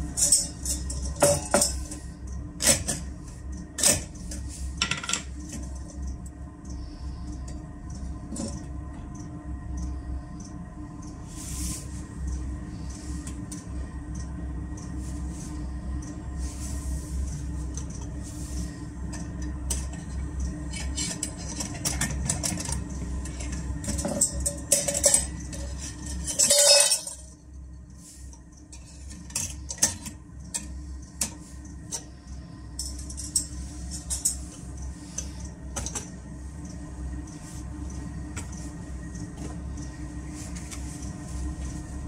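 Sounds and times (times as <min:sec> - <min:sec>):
heater humming: 0:00.0 - 0:42.0
metal parts clinking on wood: 0:26.2 - 0:27.1.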